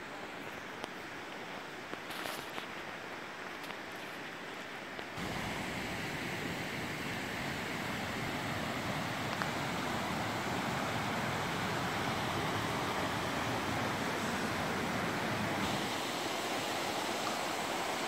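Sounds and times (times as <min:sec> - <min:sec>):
river rushing over rapids: 0:04.2 - 0:18.0.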